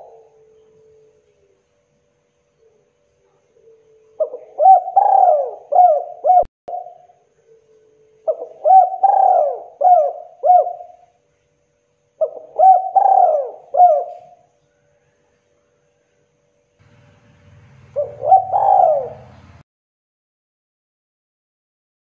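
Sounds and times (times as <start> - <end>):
dove cooing: 0.0 - 1.6, 2.6 - 11.1, 12.2 - 14.5, 17.8 - 19.6.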